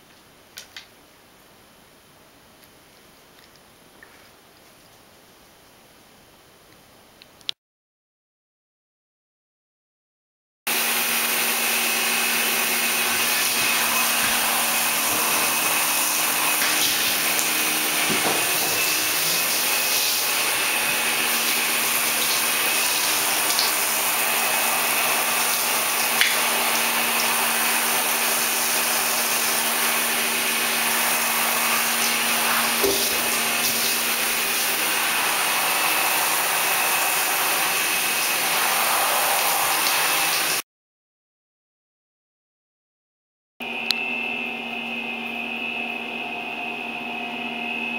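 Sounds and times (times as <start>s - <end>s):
shower water spray hissing: 10.7s - 40.6s.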